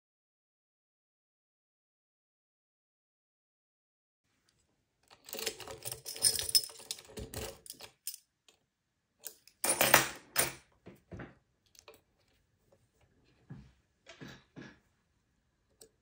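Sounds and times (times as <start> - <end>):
lock picking clicks and rattles: 5.0 - 8.2.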